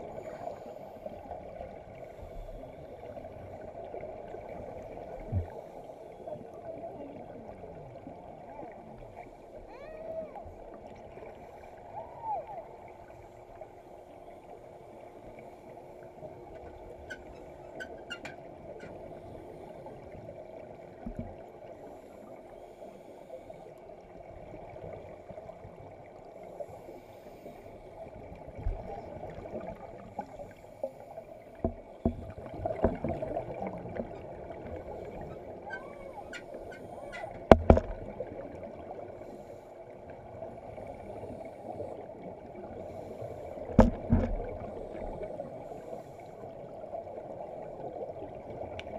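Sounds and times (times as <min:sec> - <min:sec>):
muffled underwater hum: 0:26.2 - 0:47.9
clicks and knocks: 0:37.2 - 0:38.0.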